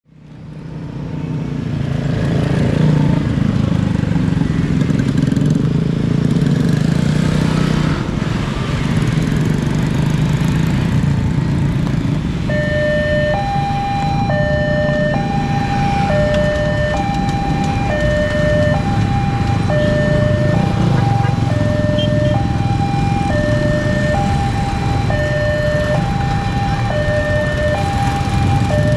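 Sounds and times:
car engines: 0.1s - 28.9s
motorcycle engines: 0.1s - 28.9s
two-tone crossing alarm: 12.4s - 28.9s.

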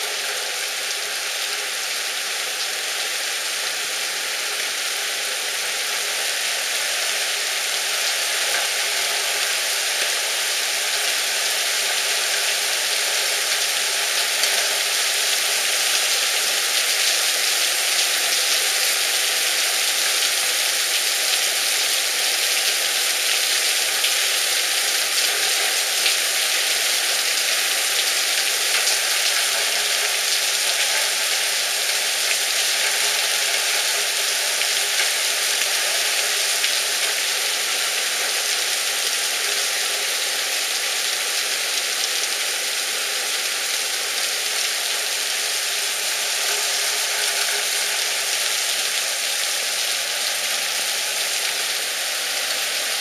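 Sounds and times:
heavy rain pouring: 0.0s - 53.0s.

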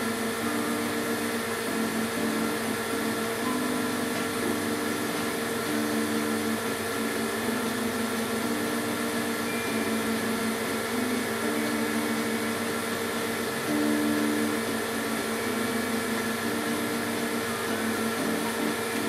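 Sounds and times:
air pump whirring: 0.0s - 19.0s.

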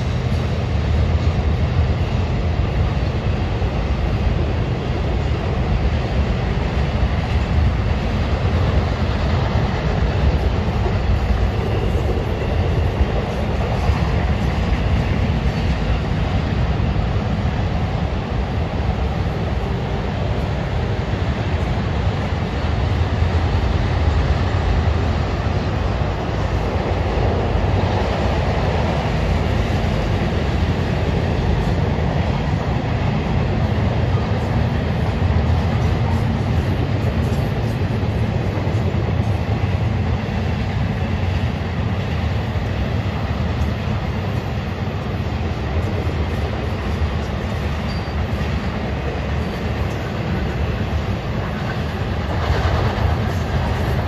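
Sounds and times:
train wheels rumbling on bridge: 0.0s - 54.0s.

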